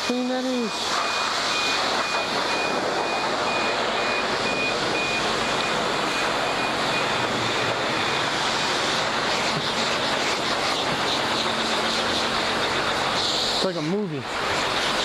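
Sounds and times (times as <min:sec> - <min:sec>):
pressure wand water spray: 0:00.0 - 0:03.6, 0:05.8 - 0:15.0
faint high beep: 0:00.1 - 0:07.2.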